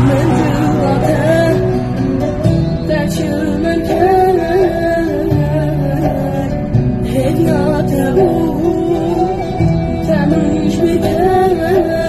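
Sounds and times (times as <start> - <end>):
person singing: 0.0 - 12.0
plucked strings: 0.0 - 12.0.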